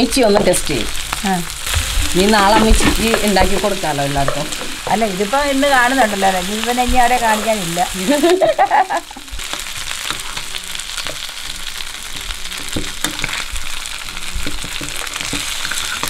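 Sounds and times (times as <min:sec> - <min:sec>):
oil sizzling in a frying pan: 0:00.0 - 0:16.0
spoon clinking and scraping: 0:14.4 - 0:16.0.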